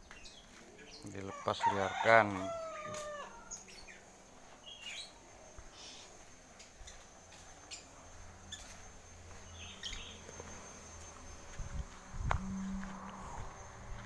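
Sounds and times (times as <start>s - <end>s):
faint bird chirps: 4.6s - 11.8s
faint steady high tone: 4.6s - 14.0s.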